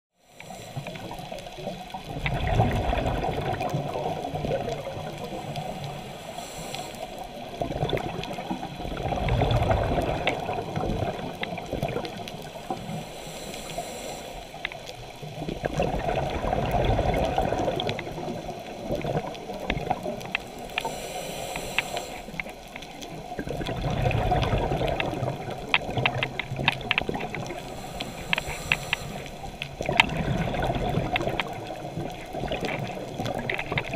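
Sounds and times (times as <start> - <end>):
faint clicks: 0.4 - 15.8, 17.2 - 33.9
exhaled bubbles rushing: 1.0 - 6.1, 7.4 - 13.0, 15.0 - 20.7, 22.5 - 28.2, 29.1 - 33.9
diver breathing through regulator: 5.4 - 7.4, 12.6 - 14.7, 20.5 - 22.6, 27.4 - 29.5.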